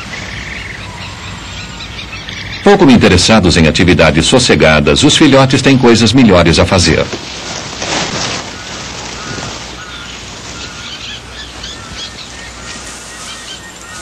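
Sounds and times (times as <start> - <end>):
birds chirping: 0.0 - 14.0.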